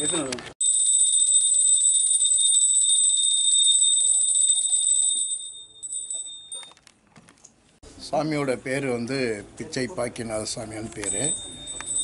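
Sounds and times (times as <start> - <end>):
hand bell ringing rapidly: 11.1 - 12.0.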